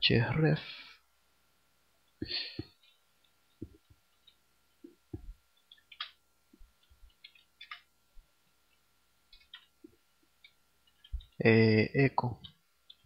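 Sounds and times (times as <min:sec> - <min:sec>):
keyboard typing clicks: 0:05.2 - 0:06.2, 0:06.8 - 0:07.9, 0:09.3 - 0:11.4.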